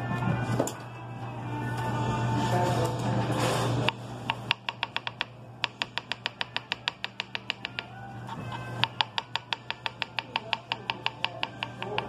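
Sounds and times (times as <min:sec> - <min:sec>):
knife chopping on cutting board: 0:08.8 - 0:12.0.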